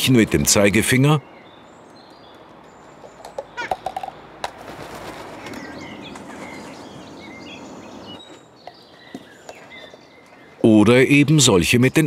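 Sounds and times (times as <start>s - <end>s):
small birds chirping: 0.0s - 12.0s
rustling: 3.0s - 7.2s
bird knocking on cup: 3.1s - 4.6s.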